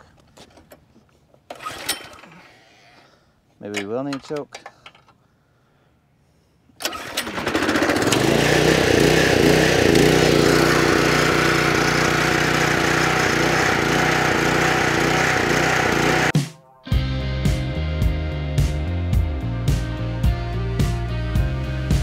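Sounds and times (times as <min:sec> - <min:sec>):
small gasoline engine starting and running: 0:01.5 - 0:02.4, 0:06.8 - 0:16.3.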